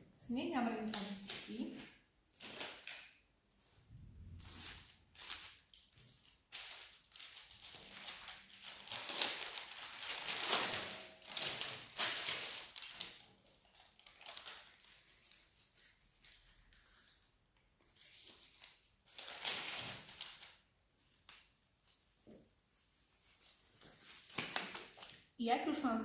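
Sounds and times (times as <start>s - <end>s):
gloves rustling: 1.1s - 25.3s
paper crinkling: 4.4s - 22.1s, 22.8s - 25.3s.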